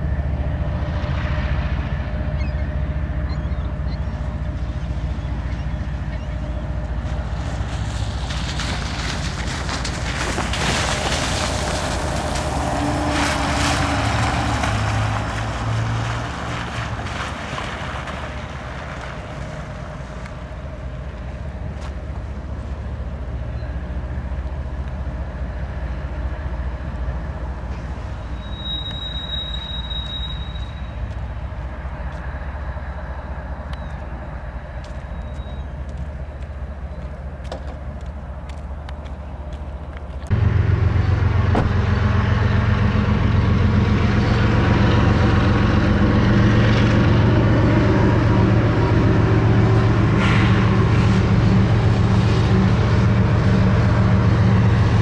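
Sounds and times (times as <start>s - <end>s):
rushing noise: 0.0s - 36.8s, 40.3s - 55.0s
diesel locomotive rumbling: 0.0s - 55.0s
high-pitched squeal: 27.7s - 31.3s, 40.3s - 55.0s.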